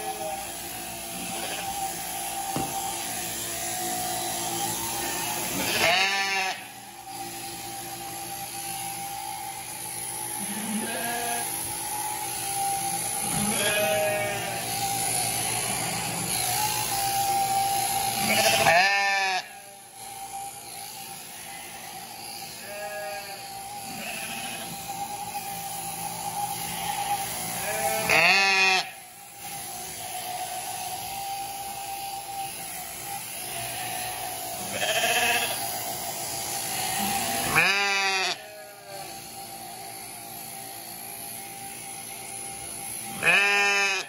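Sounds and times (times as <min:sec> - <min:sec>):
electric shearing handpiece whine: 0:00.0 - 0:44.0
sheep bleating: 0:01.2 - 0:02.0, 0:05.0 - 0:06.8, 0:10.3 - 0:11.6, 0:13.2 - 0:14.9, 0:18.2 - 0:19.7, 0:21.3 - 0:24.9, 0:26.6 - 0:29.0, 0:33.4 - 0:35.8, 0:36.6 - 0:39.3, 0:43.1 - 0:44.0.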